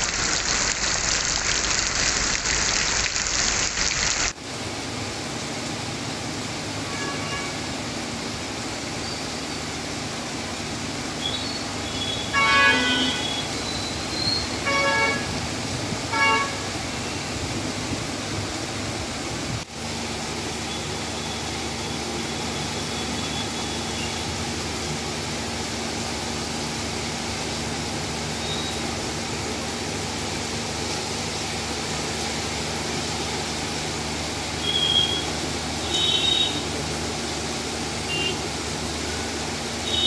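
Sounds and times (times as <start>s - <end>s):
heavy rain: 0.0s - 40.0s
street traffic: 0.0s - 40.0s
vehicle horn tooting: 6.9s - 7.6s, 11.9s - 13.5s, 14.6s - 15.4s, 16.1s - 16.7s, 34.6s - 36.7s, 38.1s - 38.4s.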